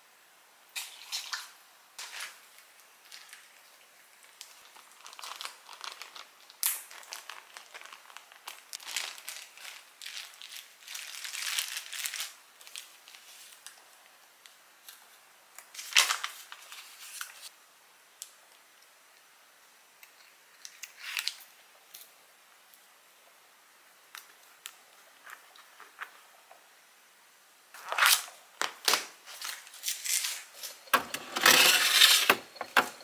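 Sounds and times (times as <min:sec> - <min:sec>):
crinkling and rustling: 0:00.8 - 0:17.5, 0:24.1 - 0:26.7, 0:27.8 - 0:33.0.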